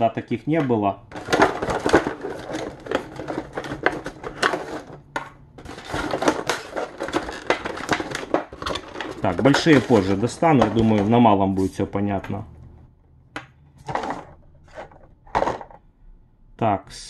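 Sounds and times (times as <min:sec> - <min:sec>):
plastic packaging crackling: 0:01.1 - 0:10.9.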